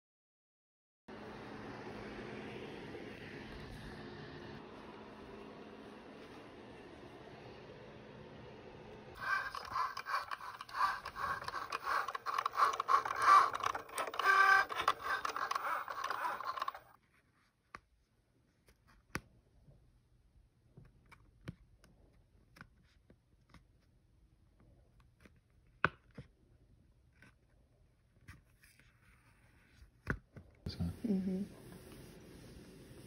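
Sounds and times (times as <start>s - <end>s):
cutting machine motors whirring: 9.2s - 16.9s
weeding tool clicks and scratches: 9.2s - 16.9s.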